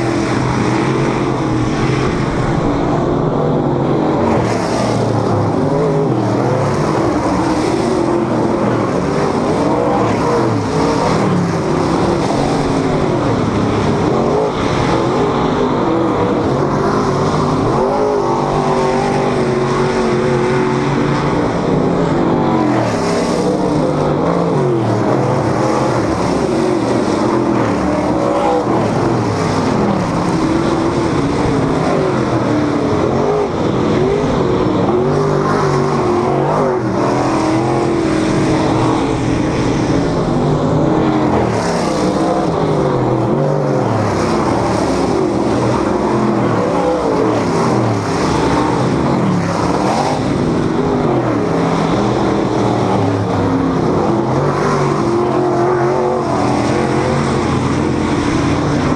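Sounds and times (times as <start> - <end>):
race car engines passing: 0.0 - 58.9.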